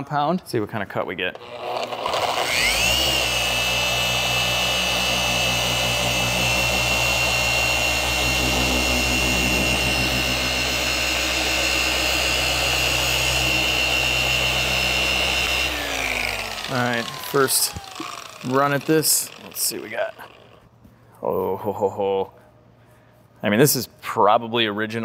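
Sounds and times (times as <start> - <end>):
car polisher motor whine: 1.4 - 20.6.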